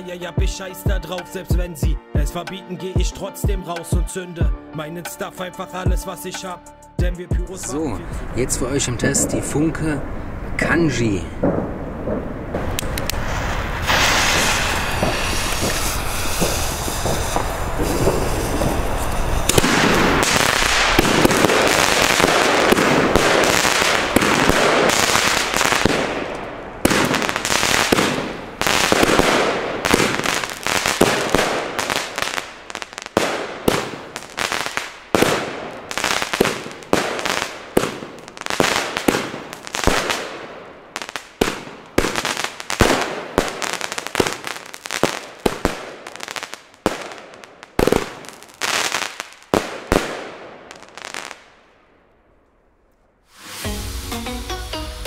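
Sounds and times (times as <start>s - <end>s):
firework battery hissing and crackling: 11.0s - 51.5s, 53.2s - 54.2s
firework shots: 11.4s - 51.8s.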